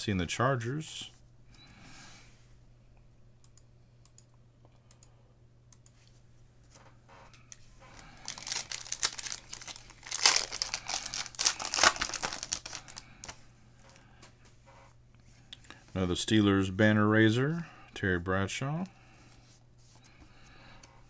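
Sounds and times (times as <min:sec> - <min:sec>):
foil wrapper crinkling: 0:08.0 - 0:13.4.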